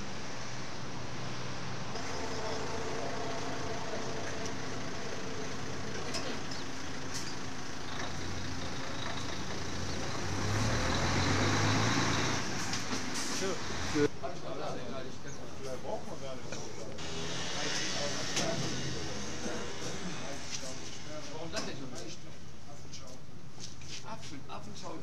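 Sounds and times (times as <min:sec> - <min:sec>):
vehicle engine rumble: 0:00.0 - 0:14.1.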